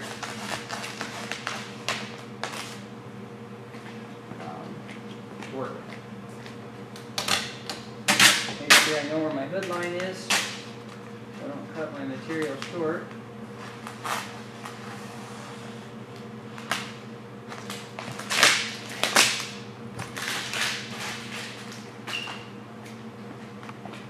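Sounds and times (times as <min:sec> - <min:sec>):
plastic film rustling and snapping: 0:00.0 - 0:02.8, 0:09.6 - 0:11.0, 0:16.5 - 0:21.9
steady low hum: 0:00.0 - 0:24.0.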